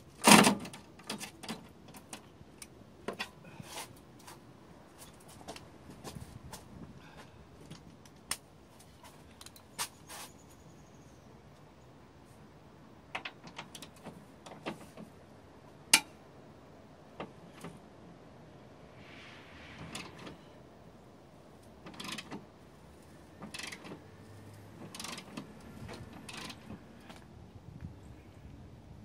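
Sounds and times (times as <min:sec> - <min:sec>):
metal parts clicking and knocking: 0:21.8 - 0:22.4, 0:23.4 - 0:24.0, 0:24.8 - 0:26.8.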